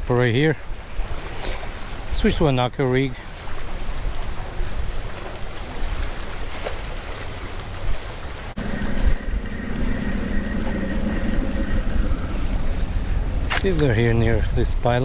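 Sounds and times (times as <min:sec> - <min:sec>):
wind buffeting microphone: 0:03.2 - 0:15.0
engine hum: 0:08.5 - 0:13.6.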